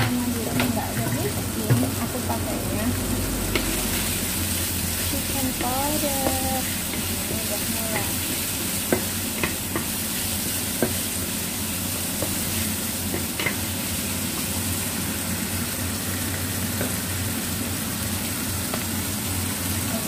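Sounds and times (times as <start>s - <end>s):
chicken sizzling in a frying pan: 0.0s - 20.0s
spatula tapping and scraping pan: 5.4s - 11.1s, 12.1s - 13.7s.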